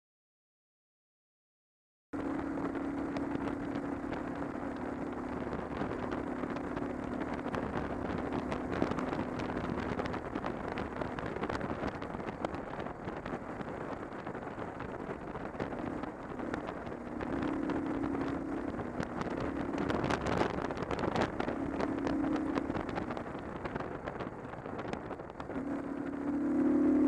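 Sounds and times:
motorcycle engine running: 2.2s - 27.0s
wind noise on microphone: 2.2s - 27.0s.

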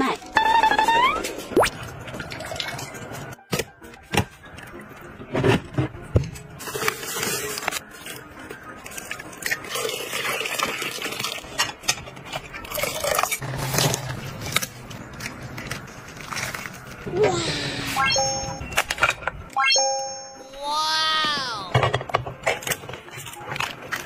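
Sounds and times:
clinks and scrapes of utensils: 6.6s - 19.4s
hot water pouring into bowl: 9.5s - 11.5s
liquid pouring: 9.6s - 11.5s.

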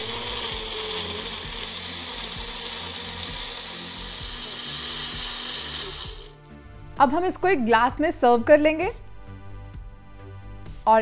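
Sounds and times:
blender running: 0.0s - 6.4s.

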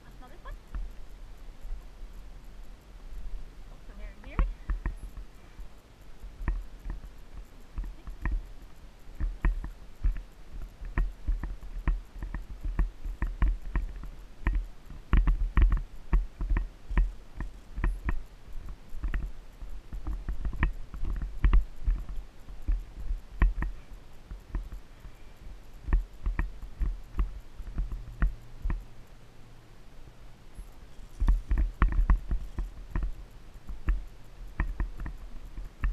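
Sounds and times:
horse hoofbeats on sand: 6.2s - 28.9s, 30.6s - 35.9s.

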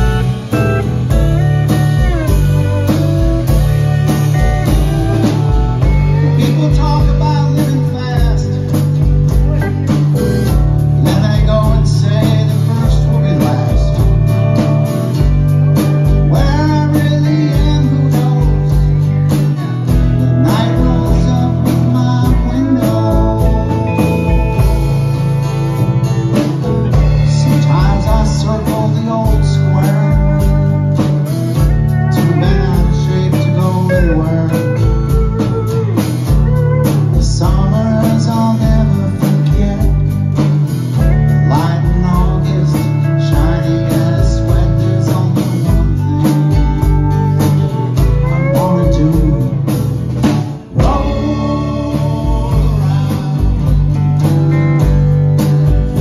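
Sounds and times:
live country blues band: 0.0s - 56.0s
man singing: 3.4s - 25.4s, 26.0s - 54.9s.

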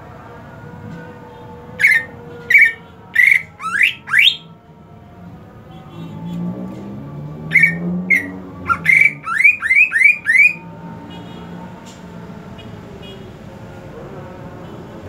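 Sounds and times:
bird whistling song: 1.8s - 4.4s, 7.5s - 10.6s.

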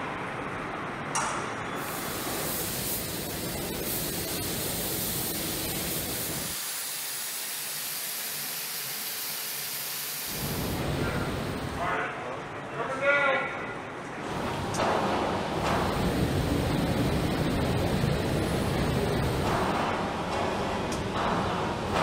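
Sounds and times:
paint spray guns hissing: 1.8s - 11.7s.

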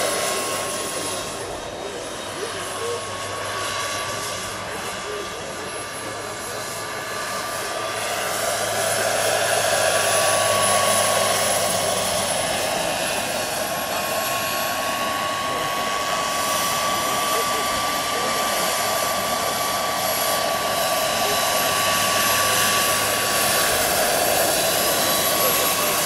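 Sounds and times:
model helicopter turbine whine: 0.0s - 26.0s
rotor blades rushing: 0.0s - 26.0s.

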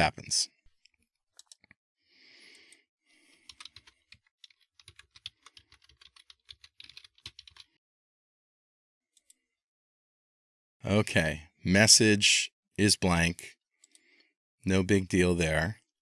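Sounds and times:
faint keyboard typing: 0.8s - 1.8s, 2.4s - 7.8s.

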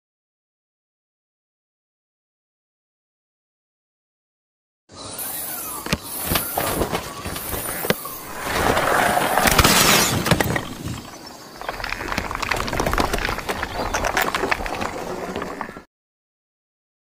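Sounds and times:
glass shattering: 9.4s - 11.1s.

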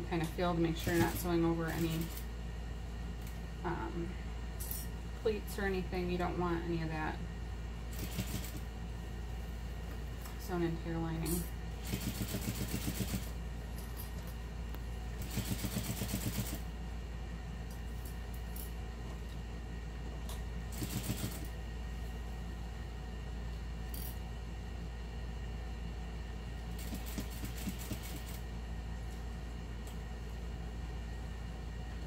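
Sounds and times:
sewing machine needle strokes: 8.0s - 8.6s, 11.8s - 13.3s, 15.2s - 16.6s, 20.8s - 21.5s, 26.8s - 28.4s.

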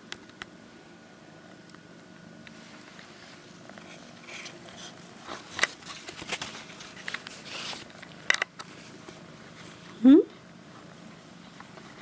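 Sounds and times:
rustling: 2.5s - 9.9s.

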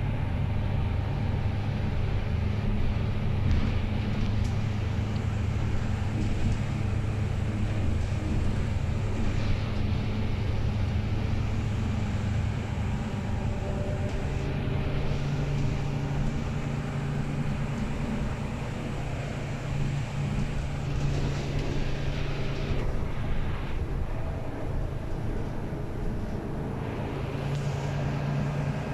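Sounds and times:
bus engine drone: 0.0s - 28.9s
tyres on wet slushy road: 0.0s - 28.9s.

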